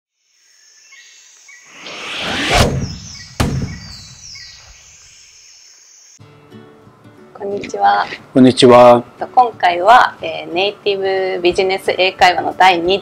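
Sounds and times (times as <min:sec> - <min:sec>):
birdsong: 0:00.3 - 0:06.2
whoosh: 0:01.7 - 0:04.1
deep hit: 0:02.2 - 0:04.2.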